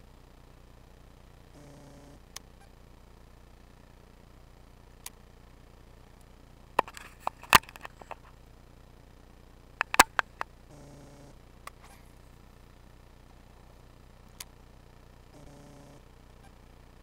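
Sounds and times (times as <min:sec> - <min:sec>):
low hum: 0:00.0 - 0:17.0
fishing reel knocks and clicks: 0:09.8 - 0:10.4.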